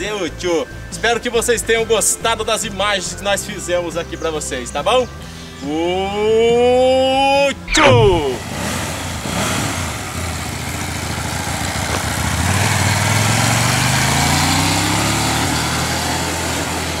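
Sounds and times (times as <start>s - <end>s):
motorcycle engine passing by: 7.9s - 17.0s.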